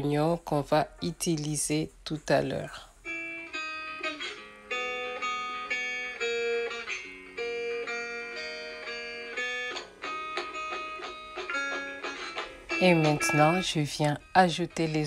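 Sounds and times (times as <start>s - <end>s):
plucked guitar melody: 3.0s - 15.0s.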